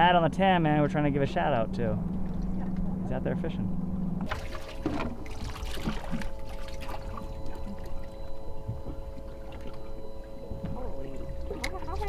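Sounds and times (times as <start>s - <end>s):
low rumble: 0.0s - 12.0s
machine hum: 0.0s - 12.0s
water splashing and trickling: 4.2s - 12.0s.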